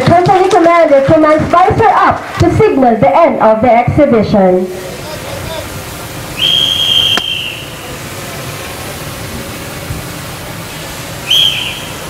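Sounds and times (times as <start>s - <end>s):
steady background hiss: 1.8s - 12.0s
whistle blast: 6.4s - 7.8s, 11.2s - 12.0s.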